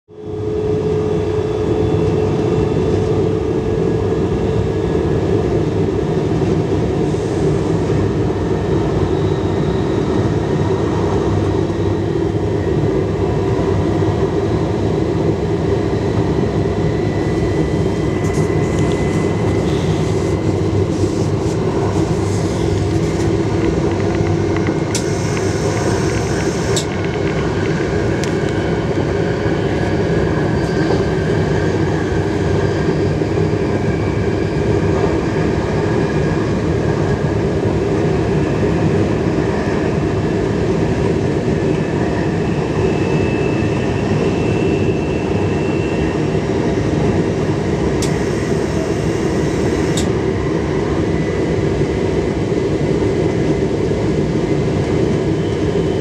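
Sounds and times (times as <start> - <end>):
train wheels rumbling on rails: 5.0 - 56.0.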